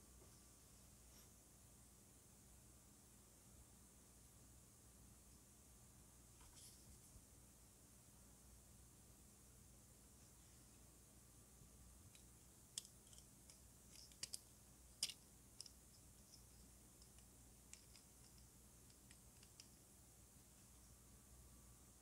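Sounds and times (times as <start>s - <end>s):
plastic parts clicking: 12.1s - 15.8s, 17.0s - 19.7s.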